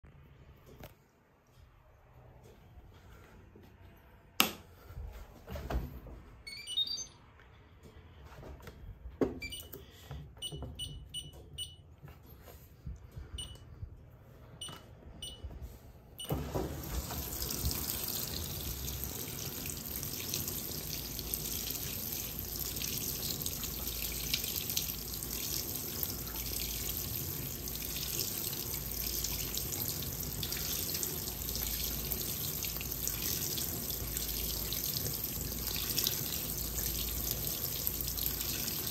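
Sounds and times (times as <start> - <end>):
short high beeps: 6.5 - 7.3
water pouring into tub: 16.3 - 38.9.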